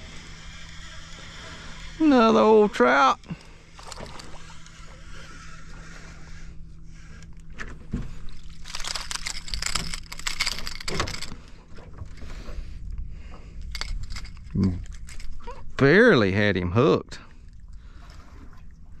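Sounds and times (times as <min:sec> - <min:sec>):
fish thrashing and splashing: 0:03.3 - 0:05.6, 0:08.0 - 0:11.5.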